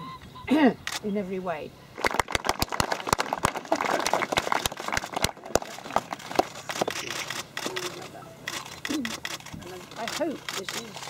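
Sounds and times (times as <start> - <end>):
crowd applause: 2.0 - 7.8.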